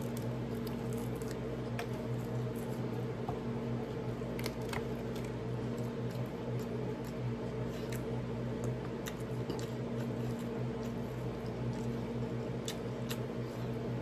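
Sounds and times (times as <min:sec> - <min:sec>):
steady low hum: 0:00.0 - 0:14.0
wet chewing mouth sounds: 0:04.4 - 0:13.8.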